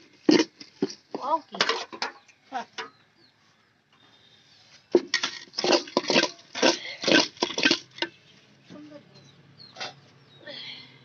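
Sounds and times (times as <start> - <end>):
ladle scraping crunchy rice: 0.0 - 1.0, 5.0 - 8.0.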